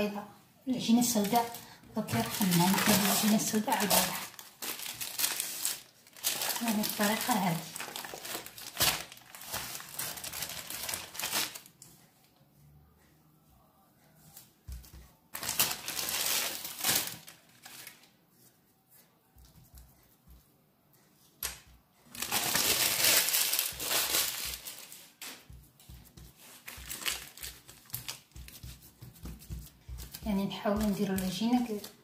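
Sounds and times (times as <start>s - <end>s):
baking paper crinkling: 0.9s - 11.8s, 14.7s - 18.5s, 22.1s - 32.0s.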